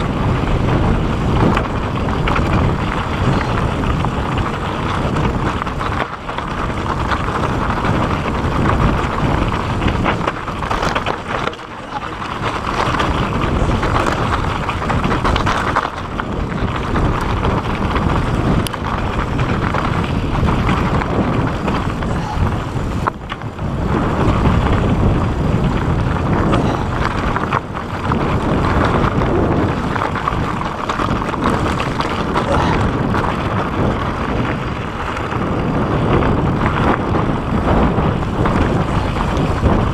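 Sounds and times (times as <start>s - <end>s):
tyres rolling on rocky dirt: 0.0s - 39.9s
wind on microphone: 0.0s - 39.9s
bike knocking over rough ground: 0.4s - 39.9s.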